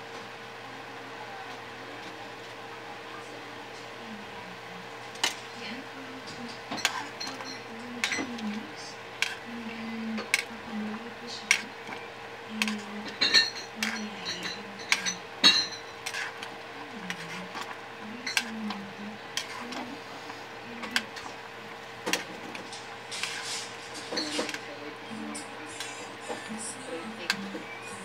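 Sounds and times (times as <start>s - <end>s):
steady low hum: 0.0s - 28.0s
ladle clinking against metal pot: 12.6s - 16.5s.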